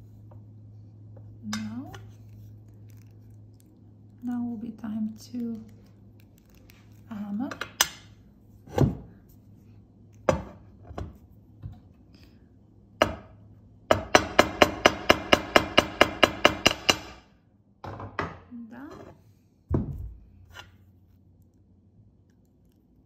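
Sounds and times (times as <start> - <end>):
hammer tapping on metal: 13.9 - 17.2.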